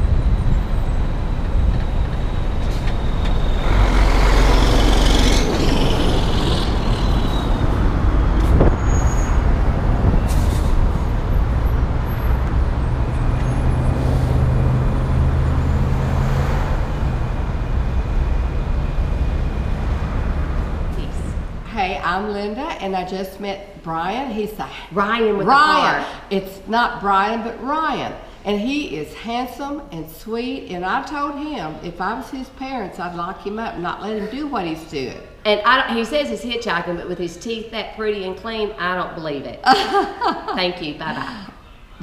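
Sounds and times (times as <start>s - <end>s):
cars and trucks passing: 0.0s - 22.3s.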